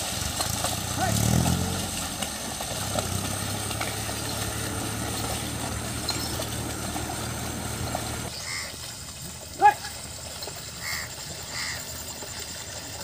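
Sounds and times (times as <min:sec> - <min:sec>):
low engine hum: 0:00.0 - 0:08.4.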